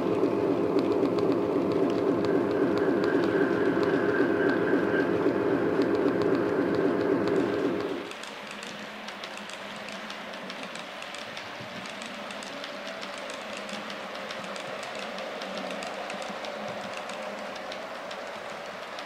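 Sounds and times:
loud hum: 0.0s - 8.1s.

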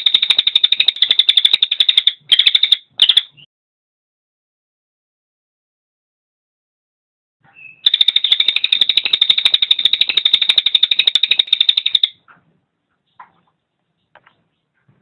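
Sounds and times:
bird chips: 0.0s - 3.4s, 7.6s - 12.2s
songbird trilling: 7.5s - 12.2s.

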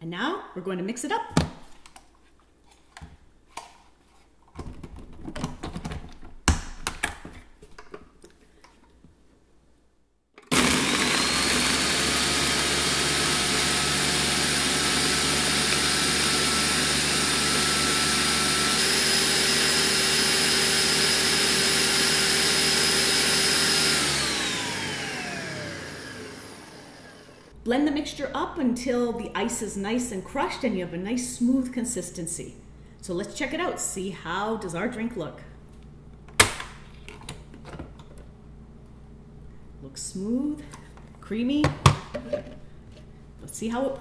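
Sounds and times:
blender crushing ice: 10.4s - 27.5s.

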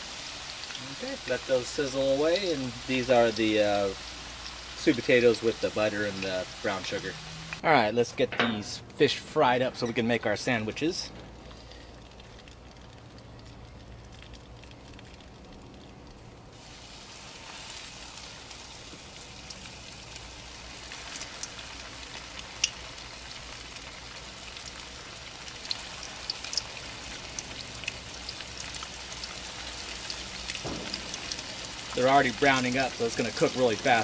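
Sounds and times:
fish fillets frying in oil: 0.0s - 7.6s, 11.5s - 34.0s
oil crackles and pops: 0.0s - 7.6s, 10.8s - 34.0s.

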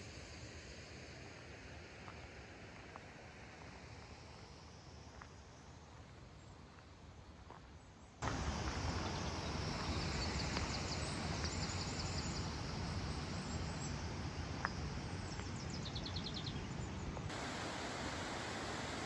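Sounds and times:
water spilling over weir: 17.3s - 19.0s.

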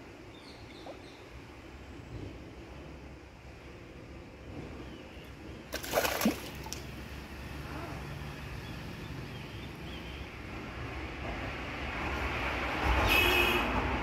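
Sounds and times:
fish splashing at water surface: 5.7s - 7.1s.

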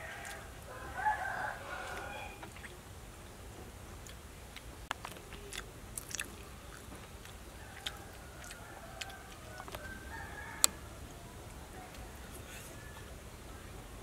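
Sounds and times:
chewing: 0.0s - 0.5s, 4.0s - 10.8s.

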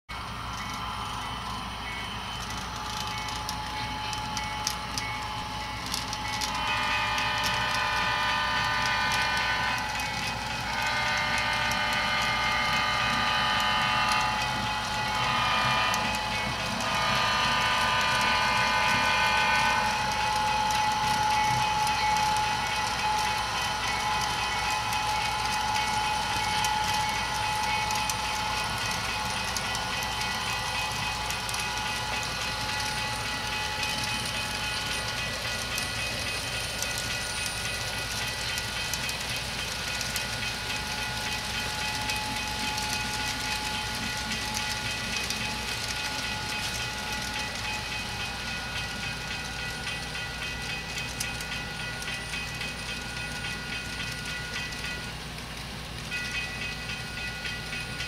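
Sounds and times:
model train horn: 2.8s - 36.0s.

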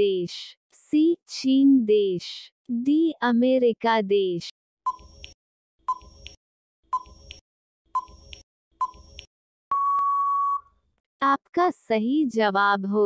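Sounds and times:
short electronic beeps: 4.9s - 5.2s, 8.0s - 9.1s, 9.7s - 10.7s
long steady beep: 9.7s - 10.7s.

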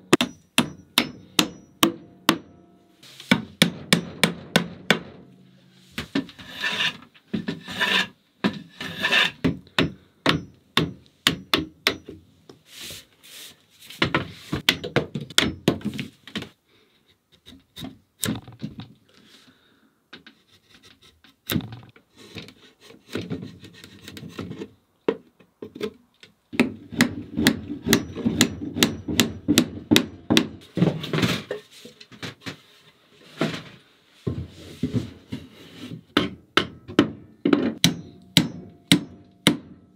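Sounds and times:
hammer blows on wooden boards: 0.0s - 2.7s, 9.4s - 12.2s, 26.6s - 30.6s, 36.1s - 39.9s
wood scraping: 5.8s - 9.4s.

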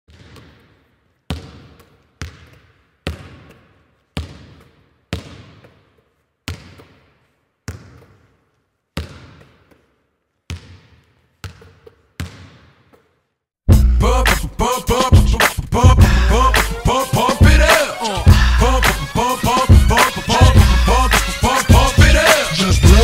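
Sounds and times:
basketball bouncing on wooden floor: 0.1s - 8.4s, 9.0s - 9.9s, 10.5s - 13.1s.

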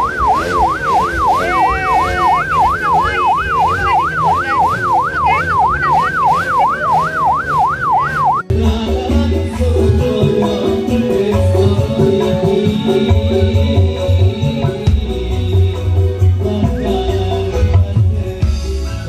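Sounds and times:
siren wailing: 0.0s - 8.5s.

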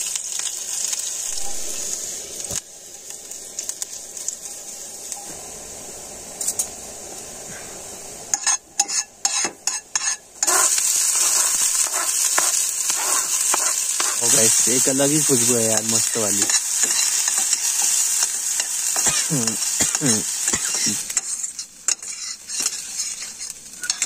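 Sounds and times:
garlic sizzling in oil: 0.0s - 24.0s
spoon stirring and knocking in pan: 8.4s - 14.2s.

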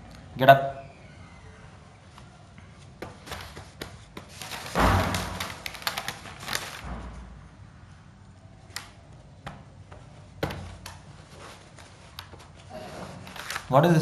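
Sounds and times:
paper sheets rustling: 2.1s - 7.3s, 9.8s - 14.0s.

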